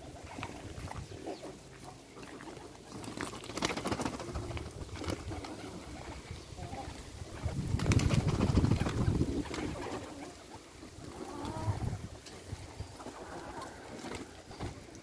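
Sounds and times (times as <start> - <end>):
pigeons cooing: 3.6 - 15.0.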